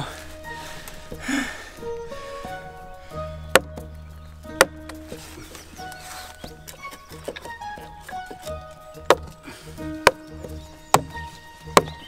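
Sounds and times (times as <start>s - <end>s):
background music: 0.0s - 12.0s
wedges struck into log: 3.5s - 5.6s, 6.4s - 12.0s.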